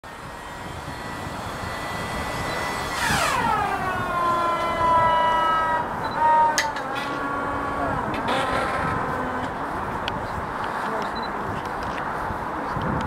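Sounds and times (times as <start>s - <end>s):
engine starter whining: 0.1s - 9.6s.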